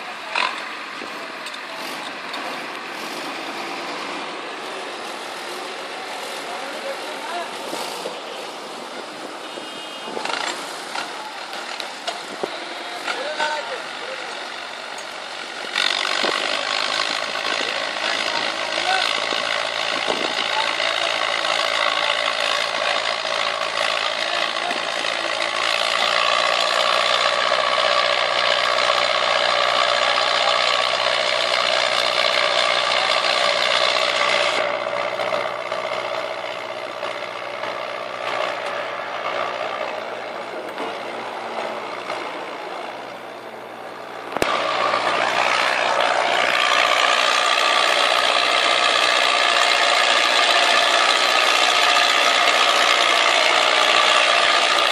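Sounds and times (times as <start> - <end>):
tractor engine under load: 0.0 - 54.9.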